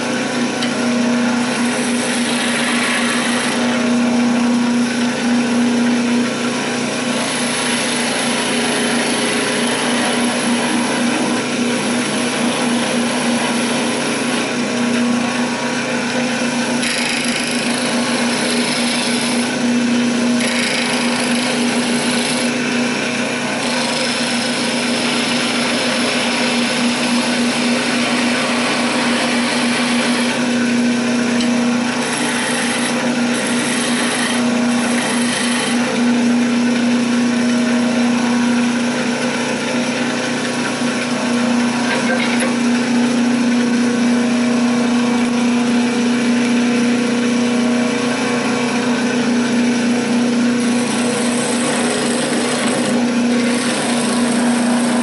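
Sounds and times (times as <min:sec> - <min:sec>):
wood lathe humming: 0:00.0 - 0:55.0
chisel cutting wood hiss: 0:01.6 - 0:03.7.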